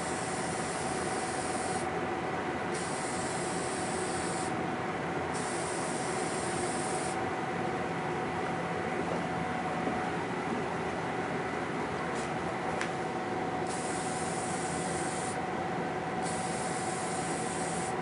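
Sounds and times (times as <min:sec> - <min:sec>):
aerosol spray hissing: 0:13.7 - 0:15.4, 0:16.2 - 0:17.9.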